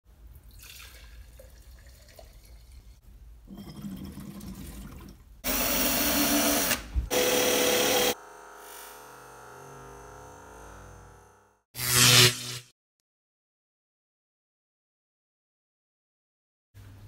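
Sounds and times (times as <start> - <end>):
liquid pouring into glass jar: 0.4 - 5.3
cordless drill running: 5.4 - 11.6.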